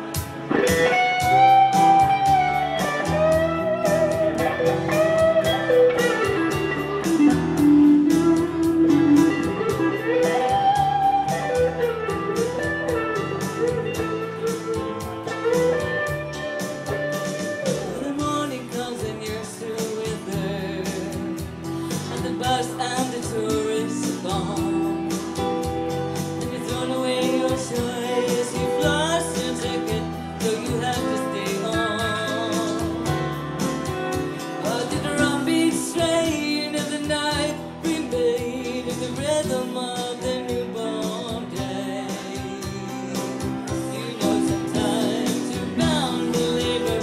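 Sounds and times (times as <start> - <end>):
guitars playing: 0.0 - 47.0
woman singing: 17.8 - 25.1, 26.4 - 33.2, 34.6 - 47.0.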